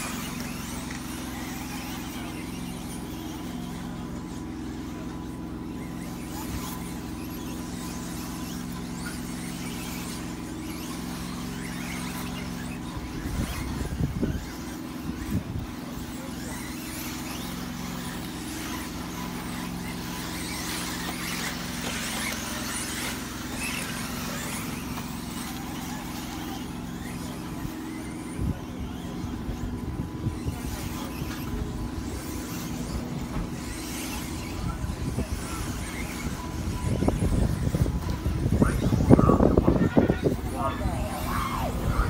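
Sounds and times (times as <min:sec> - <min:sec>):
steady low hum: 0:00.0 - 0:42.0
toy car motor whine: 0:00.0 - 0:42.0.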